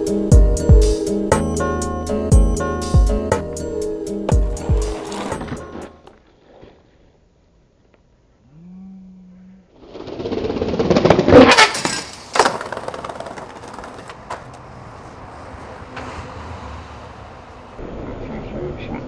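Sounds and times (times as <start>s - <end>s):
skateboard wheels rolling on pavement: 0.0s - 8.1s, 9.8s - 17.8s
skateboard clacking: 4.2s - 6.1s, 11.3s - 14.8s.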